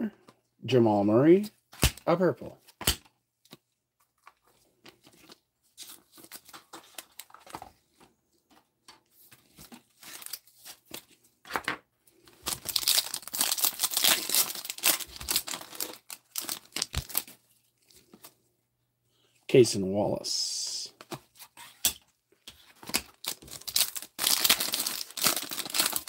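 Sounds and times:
foil wrapper tearing and crinkling: 0:12.4 - 0:17.4, 0:22.8 - 0:26.0.

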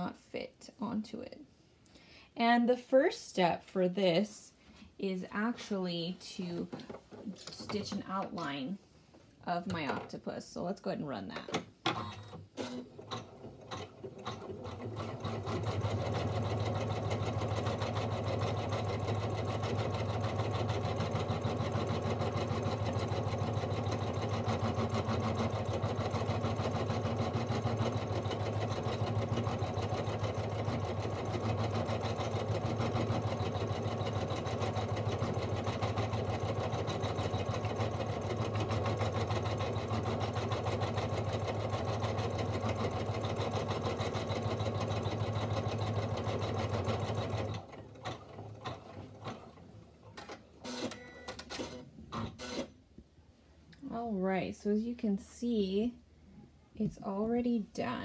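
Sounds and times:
embroidery machine stitching: 0:11.9 - 0:52.8.

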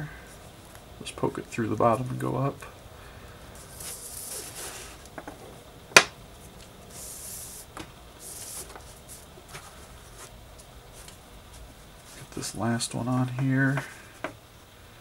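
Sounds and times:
cord rubbing on cord: 0:03.6 - 0:05.1.

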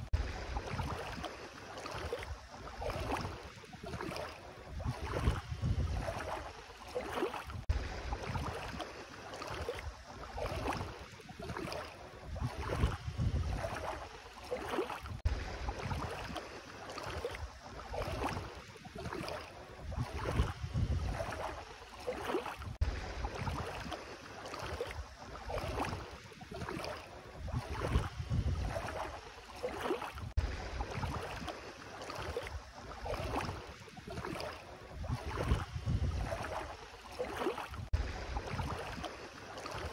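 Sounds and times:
feet wading through shallow water: 0:00.0 - 0:39.9.

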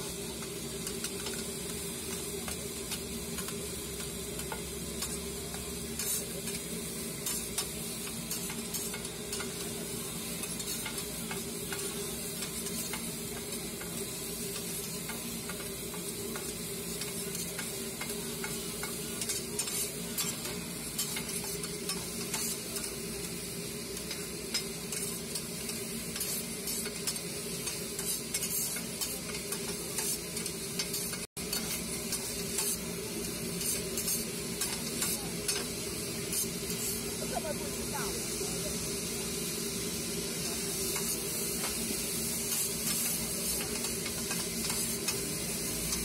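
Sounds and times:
rice sizzling on griddle: 0:00.0 - 0:46.0.

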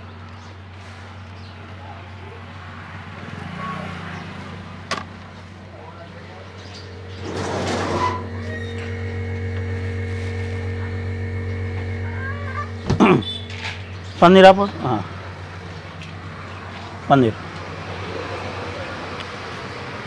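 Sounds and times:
motor humming: 0:06.1 - 0:19.8.

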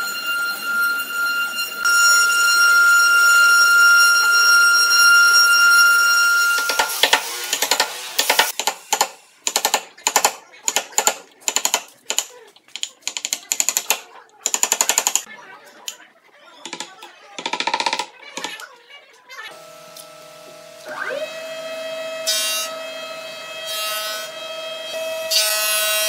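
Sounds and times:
router spindles whining: 0:19.5 - 0:26.0.

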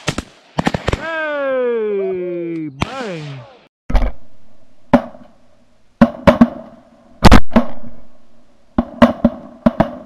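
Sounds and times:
shotgun blasts: 0:00.0 - 0:01.2, 0:07.2 - 0:08.0.

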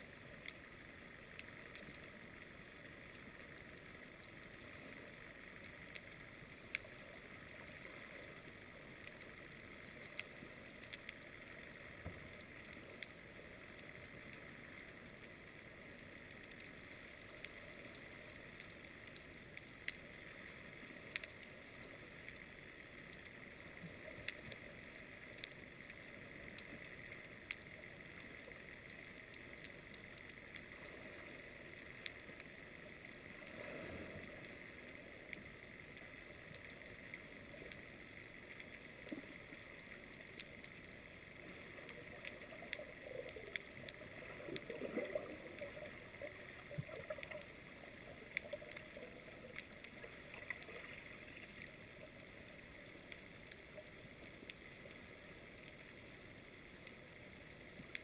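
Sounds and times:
low swirls of moving water: 0:00.0 - 0:58.0
underwater hiss: 0:33.2 - 0:35.2.

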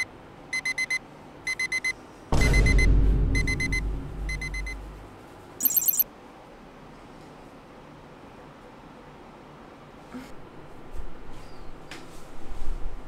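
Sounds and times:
digital alarm clock beeping: 0:00.6 - 0:04.8, 0:05.6 - 0:06.0
low rumble: 0:02.8 - 0:05.1.

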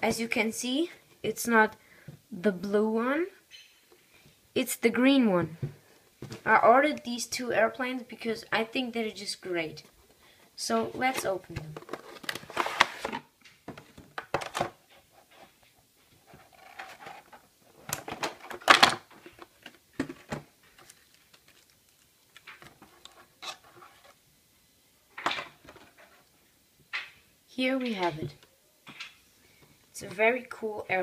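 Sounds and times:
plastic tray crinkling and clicking: 0:16.6 - 0:23.7.

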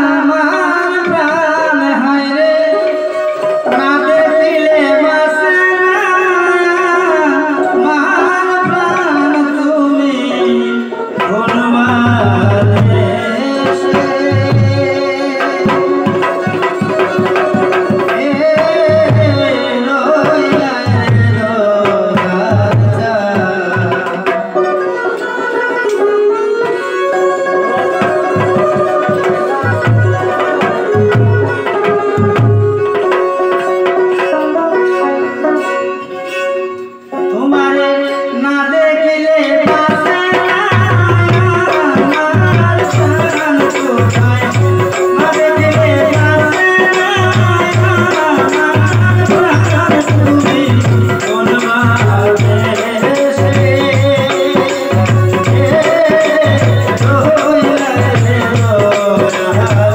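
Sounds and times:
violin melody with vibrato: 0:00.0 - 0:59.9
hand drum beat: 0:10.3 - 0:34.4, 0:39.6 - 0:59.9.

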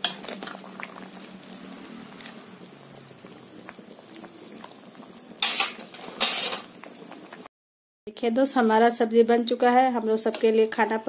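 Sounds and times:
thick curry bubbling and popping: 0:00.0 - 0:07.5.

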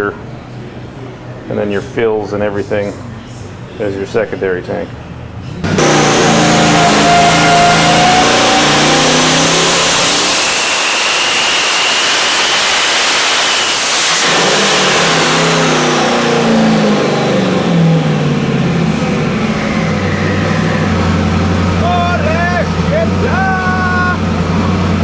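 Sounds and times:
high turbo whine: 0:05.3 - 0:25.0
engine revving at full throttle: 0:05.6 - 0:25.0.

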